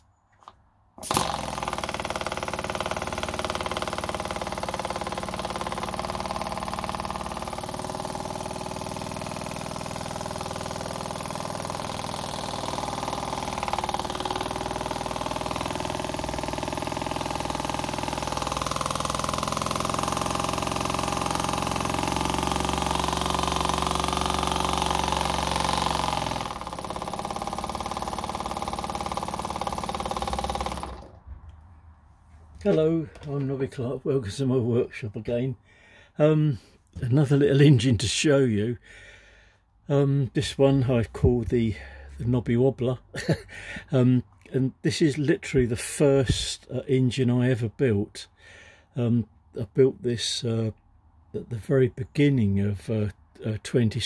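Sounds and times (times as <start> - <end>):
model engine humming: 1.0 - 31.2.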